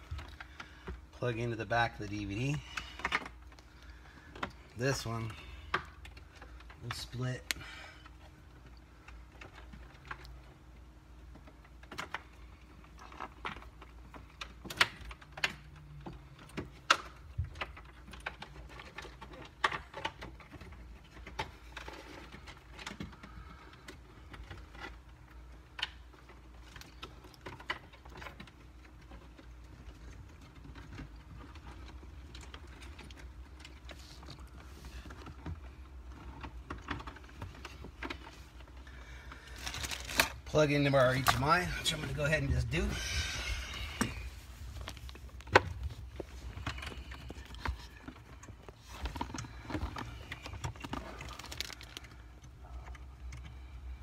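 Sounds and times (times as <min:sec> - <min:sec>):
low steady hum: 0:00.0 - 0:54.0
plastic connectors clicking and rattling: 0:44.8 - 0:53.5.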